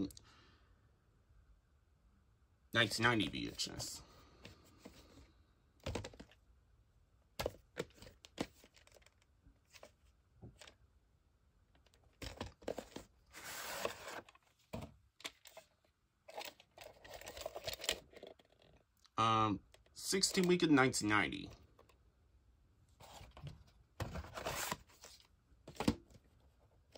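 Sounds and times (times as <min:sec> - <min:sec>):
cardboard sleeve rustling: 0:11.9 - 0:18.8, 0:23.0 - 0:26.2.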